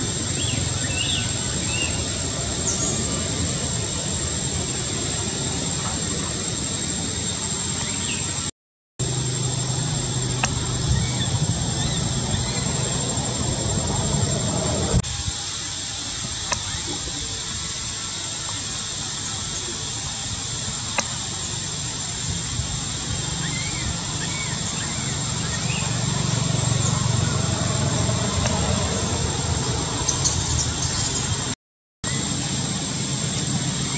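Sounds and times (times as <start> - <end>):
constant high-pitched whine: 0.0 - 33.9
low hum: 9.0 - 15.0
steady hiss: 9.5 - 25.8.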